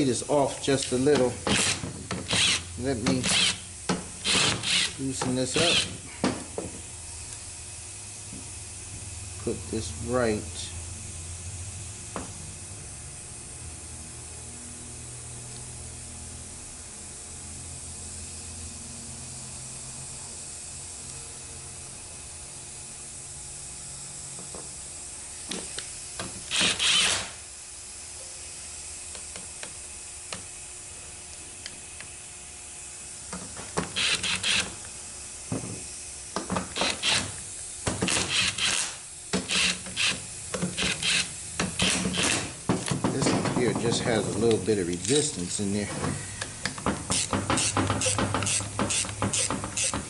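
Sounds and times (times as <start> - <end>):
cordless driver spinning bolts: 0.8 - 3.6, 4.2 - 5.9, 26.5 - 27.3, 34.0 - 34.7, 38.1 - 38.9, 39.5 - 40.2, 46.7 - 50.0.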